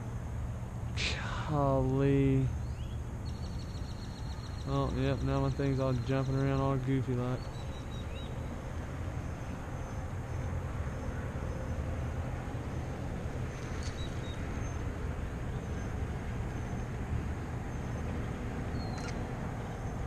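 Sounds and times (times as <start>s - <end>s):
low outdoor rumble: 0.0s - 20.0s
faint high chirp: 18.7s - 19.2s.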